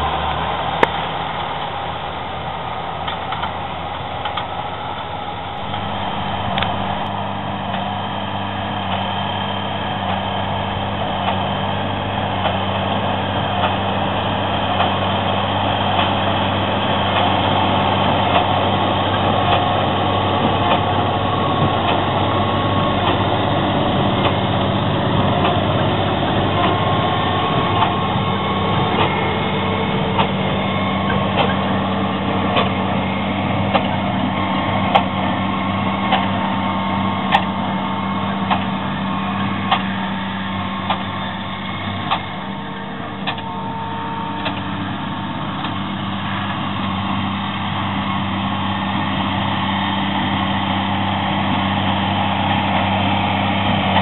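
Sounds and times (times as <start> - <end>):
diesel engine drone: 0.0 - 54.0
machinery clatter: 3.0 - 54.0.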